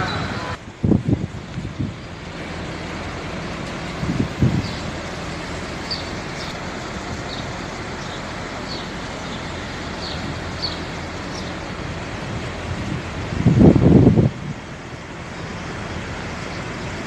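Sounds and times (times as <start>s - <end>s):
wind on microphone: 0.0s - 2.2s, 3.9s - 5.0s, 11.7s - 14.8s
traffic noise: 0.0s - 17.0s.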